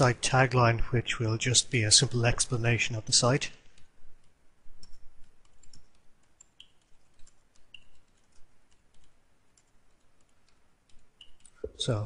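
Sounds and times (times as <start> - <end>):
computer keyboard typing: 3.8 - 11.6.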